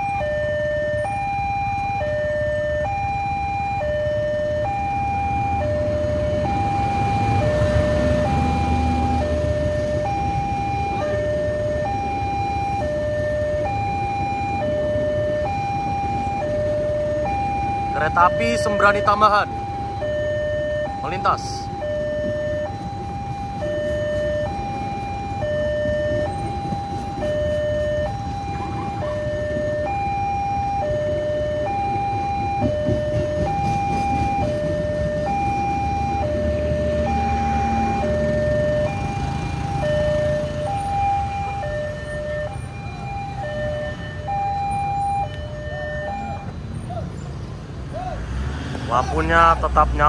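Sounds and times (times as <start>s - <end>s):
two-tone level crossing alarm: 0.0s - 46.6s
road traffic: 0.0s - 50.0s
train rumbling past: 5.8s - 20.2s, 21.2s - 30.0s, 30.8s - 50.0s.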